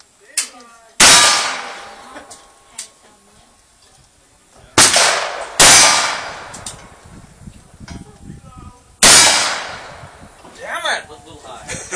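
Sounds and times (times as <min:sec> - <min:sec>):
gunshots with ringing tail: 0:01.0 - 0:02.1, 0:04.8 - 0:06.7, 0:09.0 - 0:10.2.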